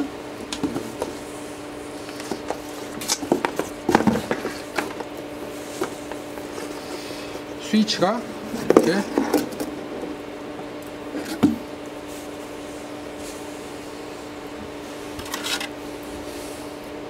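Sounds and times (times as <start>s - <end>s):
steady hum: 0.0s - 17.0s
rustling in cardboard box: 0.7s - 7.2s.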